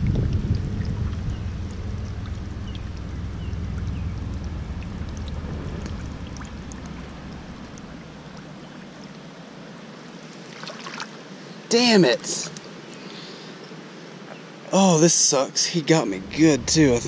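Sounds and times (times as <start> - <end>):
low rumble: 0.0 - 9.3, 16.1 - 17.0
water drips: 0.0 - 9.3
water trickling: 0.0 - 12.9
hand splashing in river water: 10.4 - 11.2.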